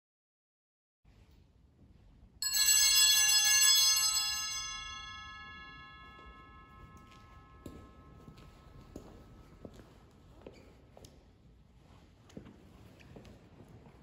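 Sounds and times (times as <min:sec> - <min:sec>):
small church bell ringing: 0:02.4 - 0:09.8.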